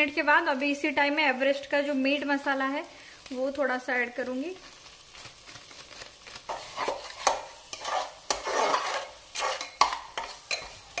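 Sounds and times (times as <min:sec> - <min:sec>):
spatula scraping paste in pot: 0:06.3 - 0:11.0.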